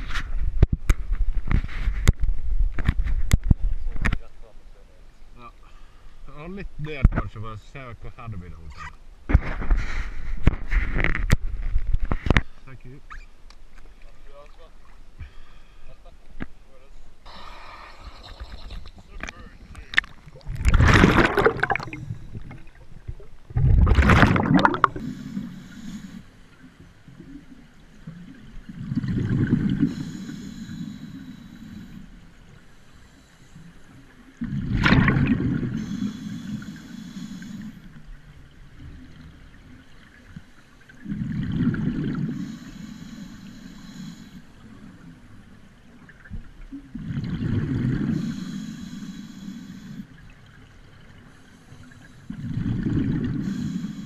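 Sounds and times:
bubbling exhale underwater: 20.4 - 22.9, 23.5 - 25.1, 28.7 - 29.9, 34.4 - 35.8, 41.0 - 42.5, 46.9 - 48.4, 52.3 - 53.8
regulator hissing: 35.7 - 37.8, 48.2 - 50.0.

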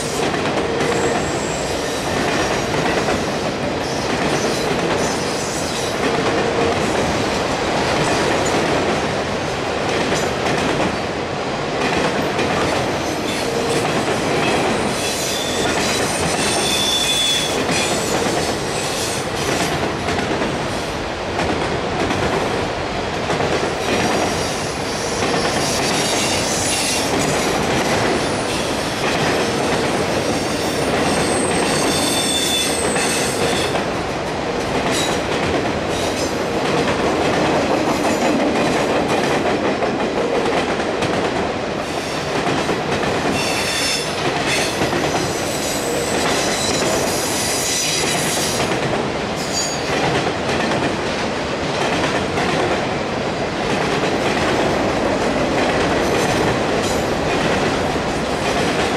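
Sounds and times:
train wheels rumbling and clattering: 0.0 - 58.9
high-pitched wheel squeal: 16.2 - 17.5.

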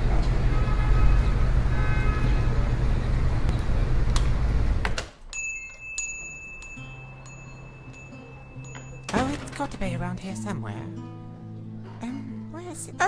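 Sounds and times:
street traffic engine rumble: 0.0 - 5.0
high bell-like chime: 5.4 - 9.5.

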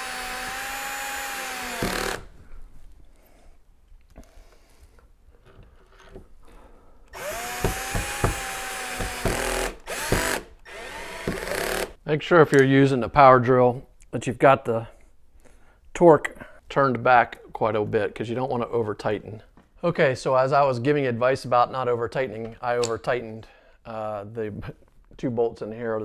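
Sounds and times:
cordless drill driving screws: 0.0 - 2.3, 7.1 - 12.0.

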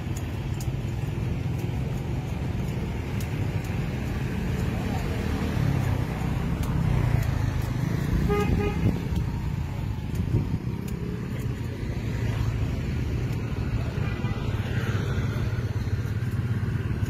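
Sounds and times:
road traffic rumble: 0.0 - 17.0
vehicle horn beeps: 8.3 - 9.0.

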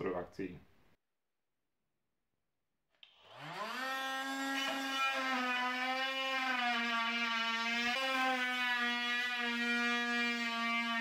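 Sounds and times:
oscillating multi-tool buzzing: 3.0 - 11.0.

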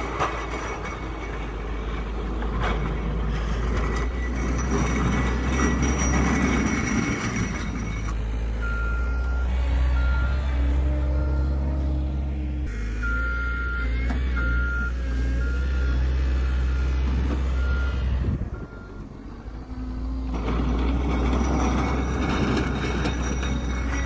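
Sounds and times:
loader diesel engine running: 0.0 - 24.0
reverse alarm beeping: 8.6 - 10.4, 12.9 - 19.1.

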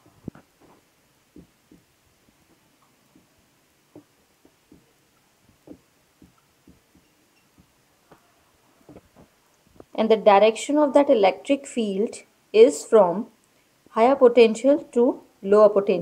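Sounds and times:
marker tapping on paper: 1.3 - 1.9, 3.9 - 4.9, 5.5 - 7.7.

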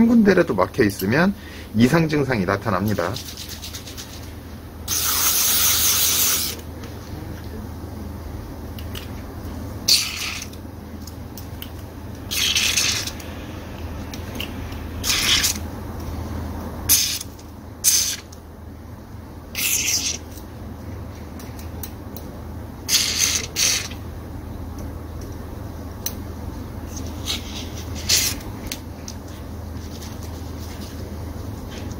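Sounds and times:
aerosol spray hissing: 4.9 - 6.6.

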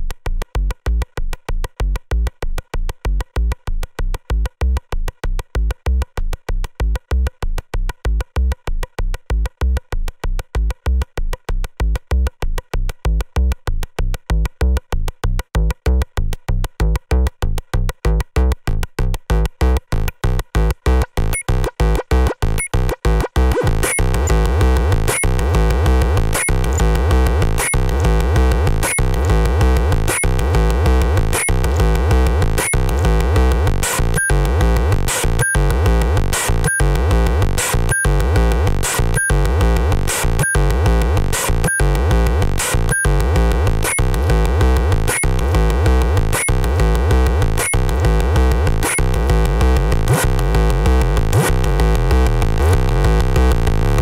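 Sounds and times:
synthesizer sequencer pattern: 20.9 - 54.0.

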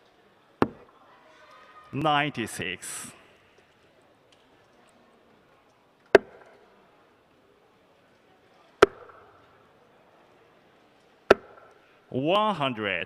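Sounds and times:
darts thudding into dartboard: 11.3 - 11.7.

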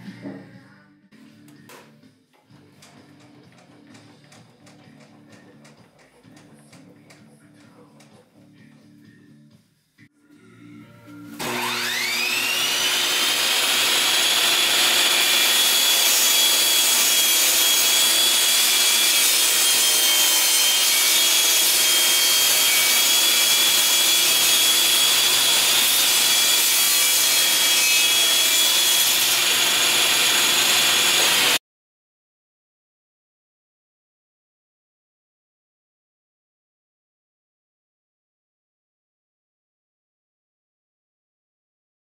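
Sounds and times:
table saw ripping wooden board: 11.4 - 31.6.

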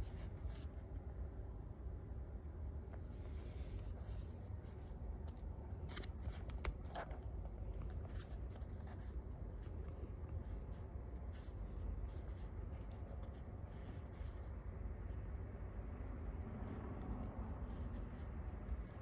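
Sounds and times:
brush pen scratching on paper: 3.7 - 15.5, 16.4 - 19.0.

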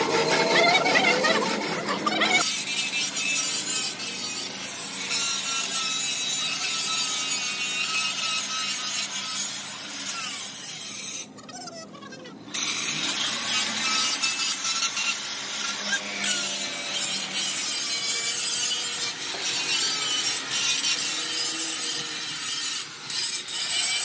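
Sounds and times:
tools scraping metal: 12.6 - 24.0.

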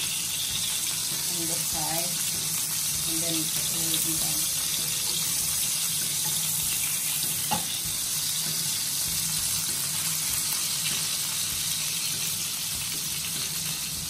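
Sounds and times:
steaks sizzling in a frying pan: 0.0 - 14.0.

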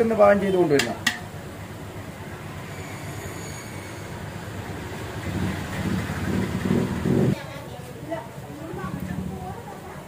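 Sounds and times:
metal ladle clinking on pot: 0.8 - 1.3.

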